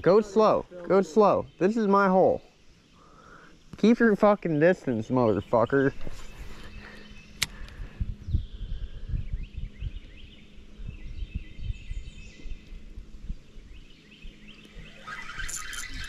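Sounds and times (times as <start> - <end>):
birds chirping: 0.0 - 16.0
fishing reel cranking: 14.9 - 16.0.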